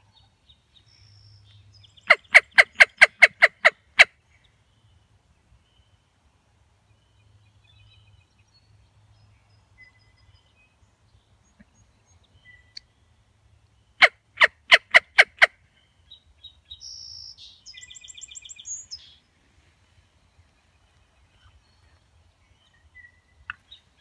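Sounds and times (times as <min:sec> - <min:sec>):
faint birdsong: 0:00.0 - 0:24.0
turkey yelps: 0:14.0 - 0:15.5.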